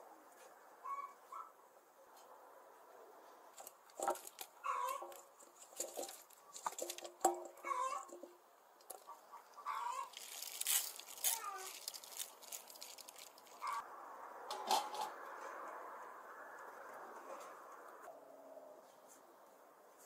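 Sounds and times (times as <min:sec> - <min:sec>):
vegetables clattering into a steel pot: 0:03.6 - 0:08.3.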